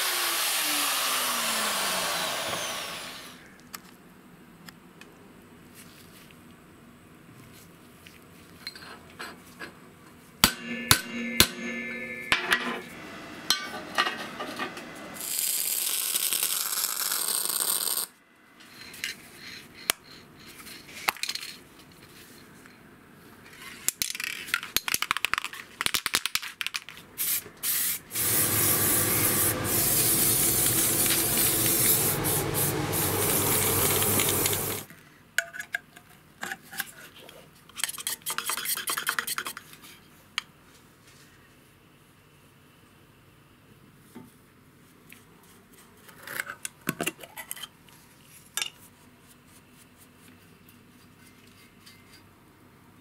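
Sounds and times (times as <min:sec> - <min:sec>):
hissing spray: 0:27.7 - 0:34.9.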